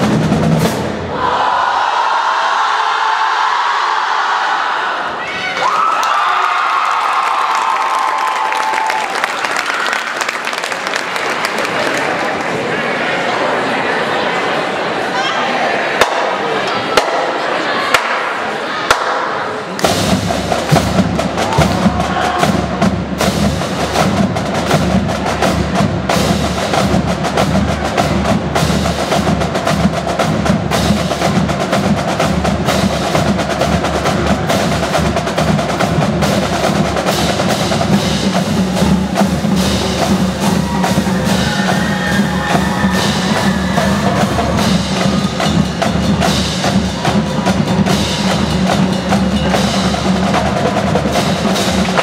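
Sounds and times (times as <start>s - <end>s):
snare drum strokes: 16.0s - 16.4s, 17.0s - 18.3s, 18.9s - 52.0s
pitched bass drums: 19.8s - 52.0s.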